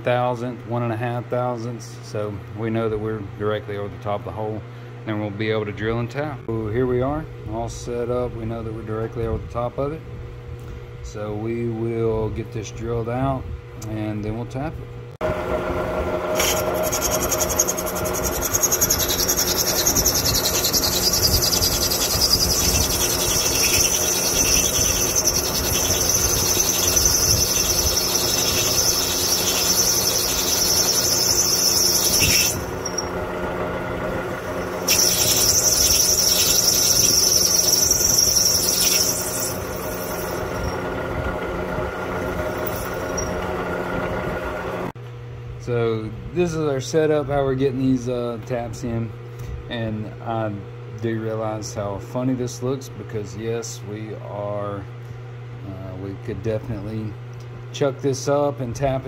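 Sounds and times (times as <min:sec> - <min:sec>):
drill press motor hum: 0:15.2 - 0:44.9
drill cutting whine: 0:16.3 - 0:33.4, 0:34.2 - 0:41.1, 0:42.0 - 0:43.7.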